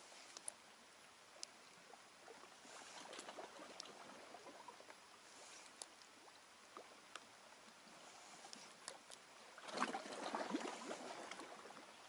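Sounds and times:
water lapping and trickling: 0.0s - 12.0s
small clicks and ticks: 0.2s - 0.6s, 1.3s - 1.9s, 3.0s - 4.0s, 4.8s - 7.8s, 8.4s - 9.3s.

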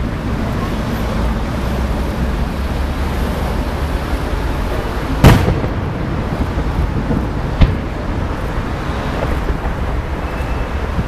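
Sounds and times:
firework bang: 5.2s - 10.6s.

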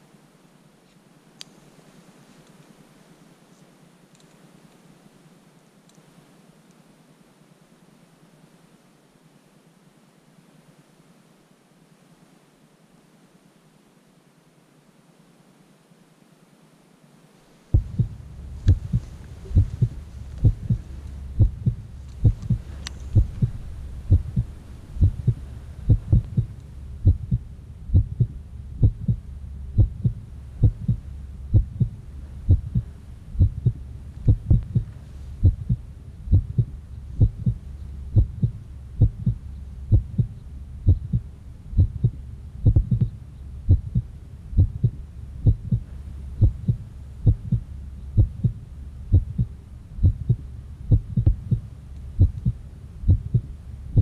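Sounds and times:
low hum: 17.4s - 54.0s
heartbeat thumps: 17.7s - 54.0s.

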